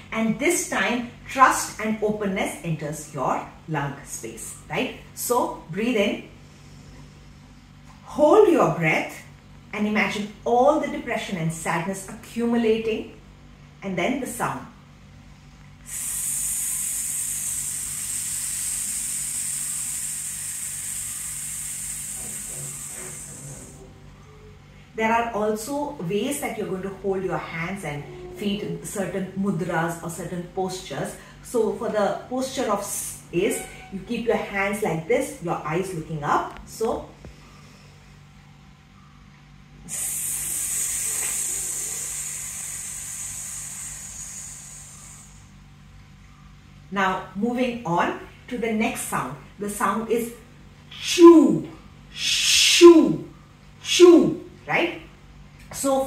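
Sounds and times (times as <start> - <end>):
woman exhaling hiss: 15.8 - 23.8, 39.8 - 45.6.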